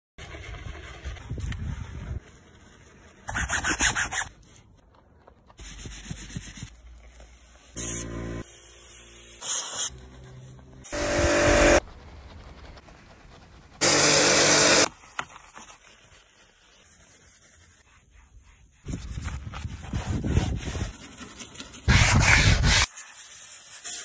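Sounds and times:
brushes scrubbing foamy surface: 0:09.5 - 0:23.3
brief machine hum: 0:10.8 - 0:11.8.

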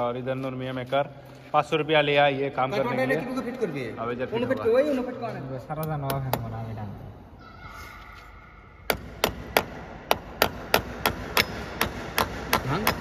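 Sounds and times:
small hammer striking: 0:08.9 - 0:13.0.

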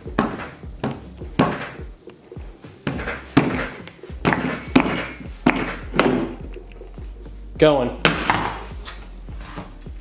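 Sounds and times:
metal tumbler thunking on wood: 0:02.8 - 0:06.5, 0:08.0 - 0:08.7.

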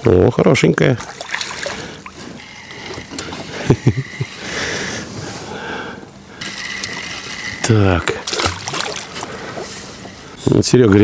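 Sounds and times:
faint boat motor whine: 0:00.0 - 0:11.0
fish splashing: 0:01.0 - 0:05.0, 0:06.3 - 0:10.4.

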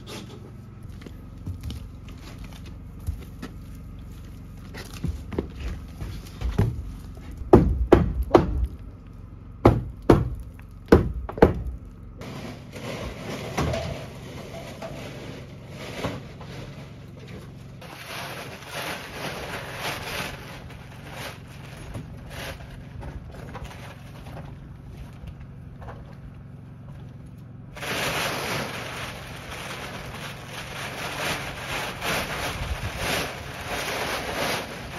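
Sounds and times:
wooden knocks and thuds: 0:04.8 - 0:08.8, 0:09.6 - 0:11.8.

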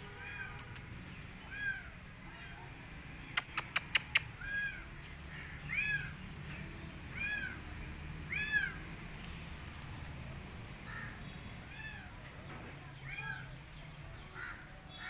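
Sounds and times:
kitten meowing: 0:00.2 - 0:02.6, 0:08.3 - 0:08.8
sharp clicks: 0:00.6 - 0:00.9, 0:03.3 - 0:04.3.

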